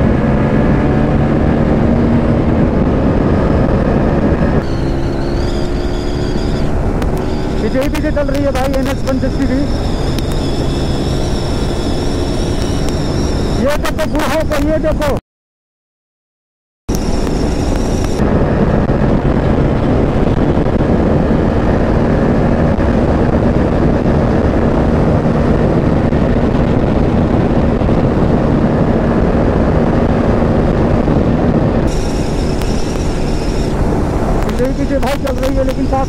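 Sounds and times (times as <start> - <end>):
motorcycle engine drone: 0.0 - 15.2, 16.9 - 36.0
wind rushing on microphone: 0.0 - 15.2, 16.9 - 36.0.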